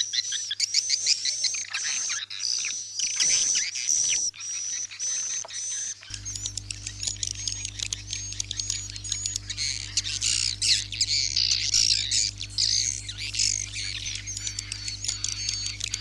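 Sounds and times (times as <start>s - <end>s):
birds twittering and chirping: 0.0s - 16.0s
low electrical hum: 6.0s - 16.0s.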